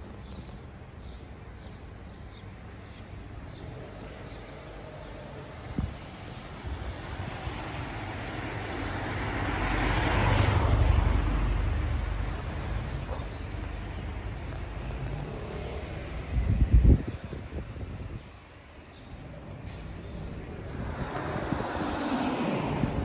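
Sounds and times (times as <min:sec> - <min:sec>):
car passing by: 0:07.6 - 0:13.1, 0:19.2 - 0:23.0.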